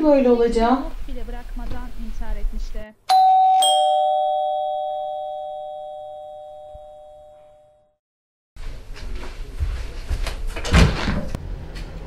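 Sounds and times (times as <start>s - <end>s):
two-tone doorbell chime: 3.1s - 7.9s.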